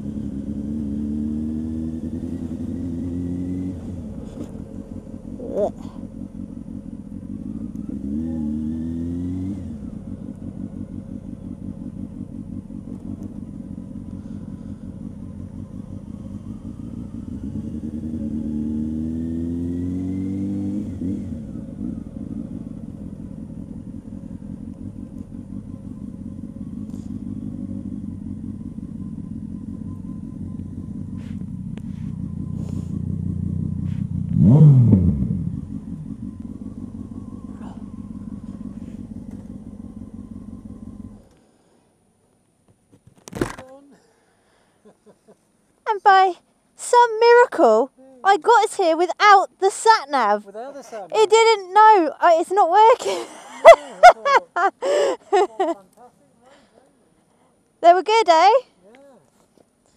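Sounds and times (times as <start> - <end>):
motorcycle engine revving: 0.0 - 41.4
motorcycle engine running: 0.0 - 41.5.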